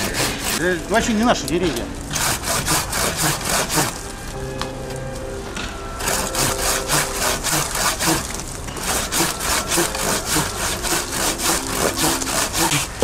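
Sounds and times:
hand saw cutting wood: 0.0 - 0.8, 2.1 - 4.0, 6.0 - 13.0.

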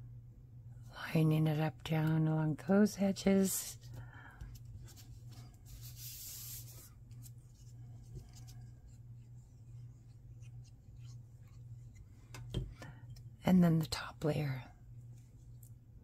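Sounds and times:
steady low hum: 0.0 - 16.0
paper rustling: 4.5 - 9.0.

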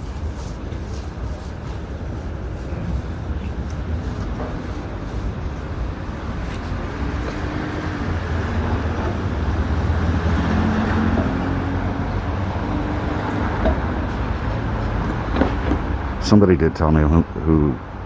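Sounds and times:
traffic rumble: 0.0 - 18.0.

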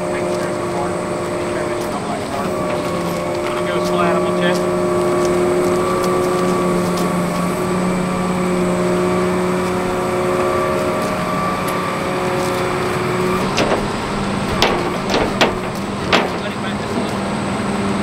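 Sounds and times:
truck engine idling: 0.0 - 18.0
sharp metallic clanks: 12.4 - 17.2.

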